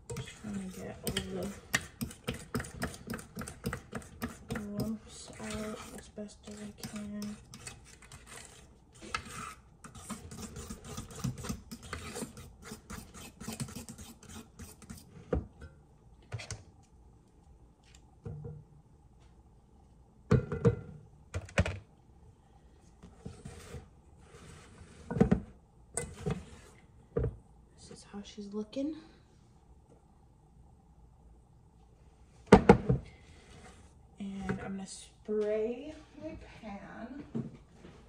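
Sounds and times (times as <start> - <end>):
kitchenware knocks and clatters: 20.3 - 21.8.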